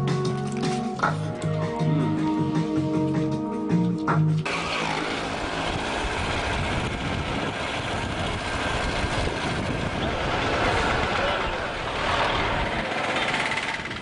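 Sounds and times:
surrounding traffic: 0.0s - 14.0s
wind and road noise: 4.4s - 14.0s
motorcycle engine running: 4.5s - 14.0s.

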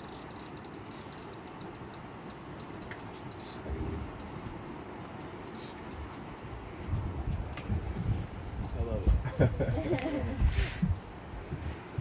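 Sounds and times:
fishing reel clicking: 0.0s - 3.6s, 5.2s - 6.2s
river noise: 0.0s - 12.0s
wind: 0.0s - 12.0s.

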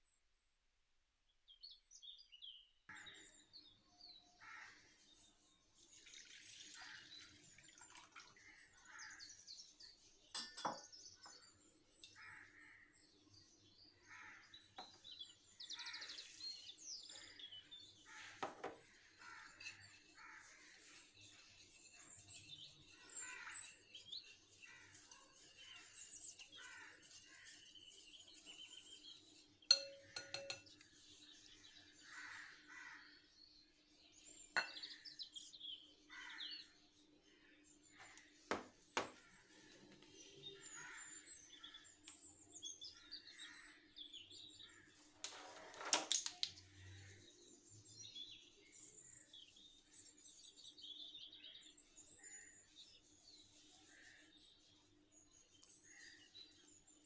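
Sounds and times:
small birds chirping: 1.5s - 45.3s, 46.1s - 57.0s
utensils clinking on glass bowl: 10.4s - 10.9s, 29.7s - 30.8s.

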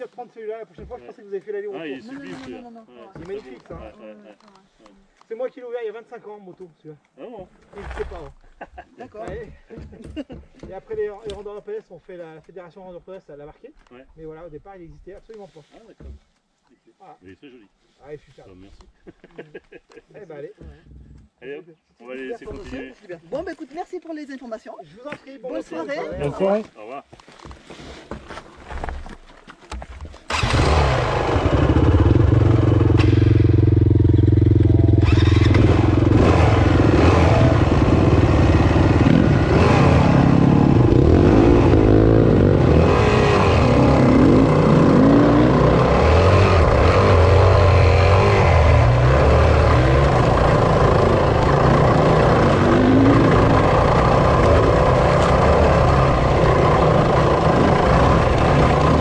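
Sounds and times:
dirt bike engine revving: 30.3s - 59.0s.

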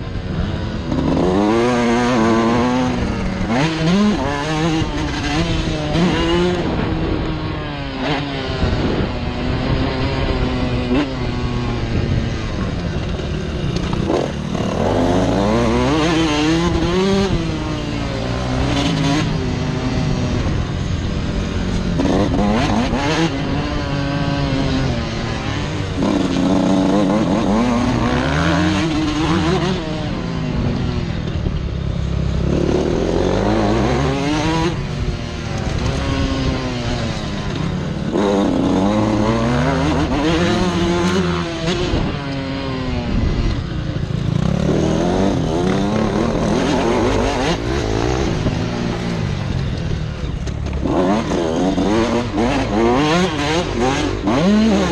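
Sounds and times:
motocross engine revving: 0.1s - 54.9s.

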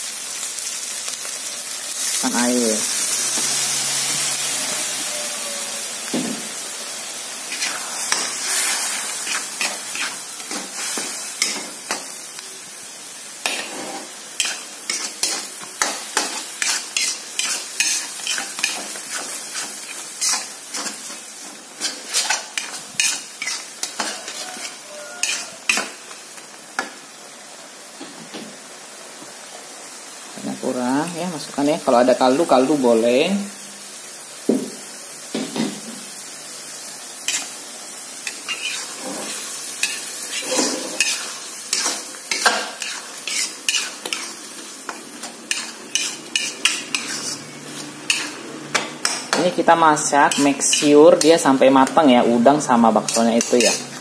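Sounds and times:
hissing sizzle: 0.0s - 54.0s
metal spatula scraping wok: 7.5s - 12.2s, 13.4s - 26.2s, 37.2s - 37.5s, 38.2s - 54.0s.

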